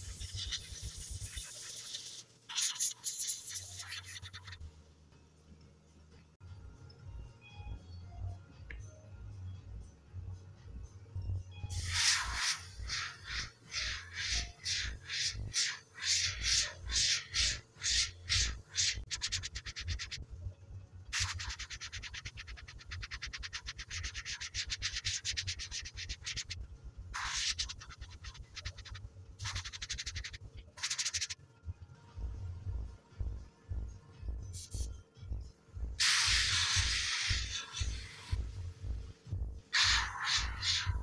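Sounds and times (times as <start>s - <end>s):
airbrush spraying hiss: 0.0s - 4.6s, 11.7s - 20.2s, 21.2s - 26.6s, 27.2s - 31.4s, 34.5s - 34.9s, 36.0s - 38.5s, 39.7s - 41.0s
soft low pulsing: 31.4s - 36.0s, 37.3s - 41.0s.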